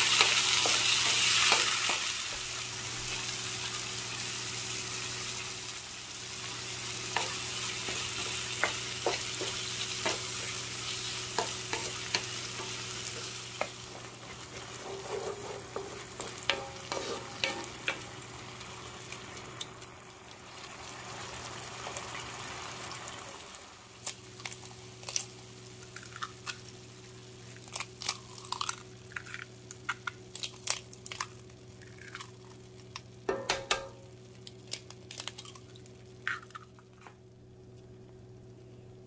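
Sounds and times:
food sizzling in a pan: 0:00.0 - 0:28.0
faint steady hum: 0:00.0 - 0:39.0
utensil scraping: 0:11.4 - 0:18.0.

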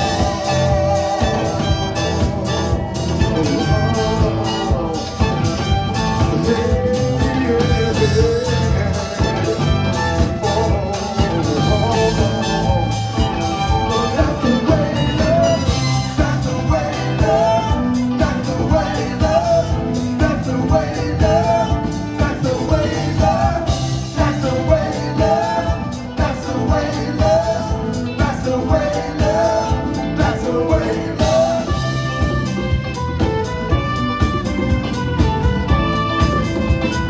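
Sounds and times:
person singing: 0:00.0 - 0:32.7
bass guitar: 0:00.0 - 0:37.0
drums: 0:00.0 - 0:37.0
electric guitar: 0:00.0 - 0:37.0
violin melody: 0:31.7 - 0:37.0.

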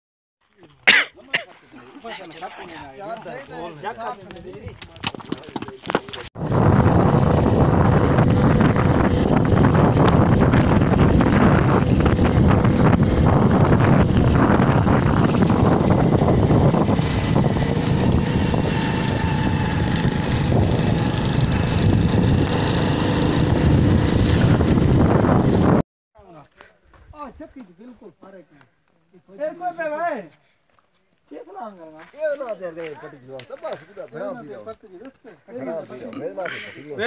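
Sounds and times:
small motorcycle engine running: 0:06.4 - 0:25.8
wind buffeting microphone: 0:06.4 - 0:25.8.

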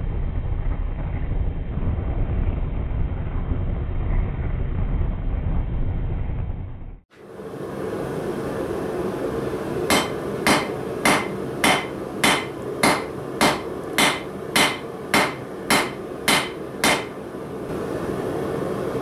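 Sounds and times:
steady hum: 0:07.1 - 0:19.0
hammer striking steel on anvil: 0:09.9 - 0:17.2.

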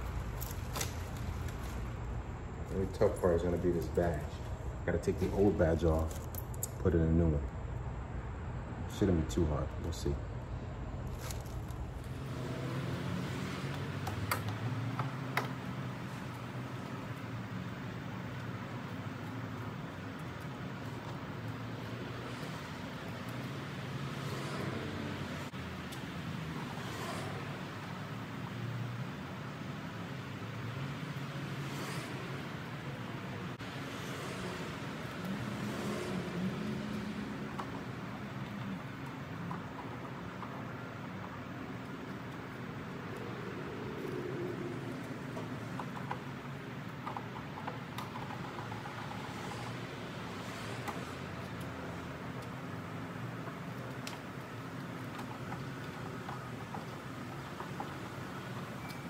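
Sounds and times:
steady low hum: 0:00.0 - 0:12.4.

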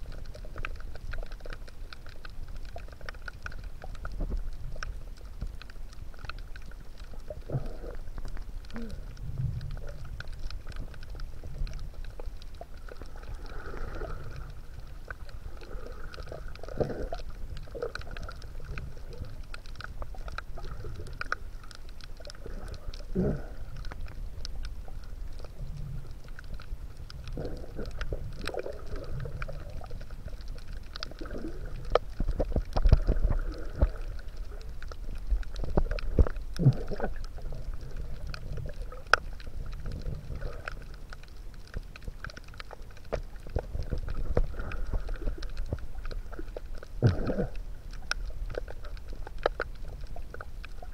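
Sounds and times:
underwater clicks and crackles: 0:00.0 - 0:50.9
underwater low rumble: 0:00.0 - 0:50.9.

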